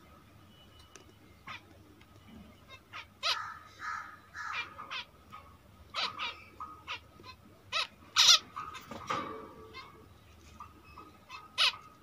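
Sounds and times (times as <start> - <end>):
finches calling: 2.5 - 8.9.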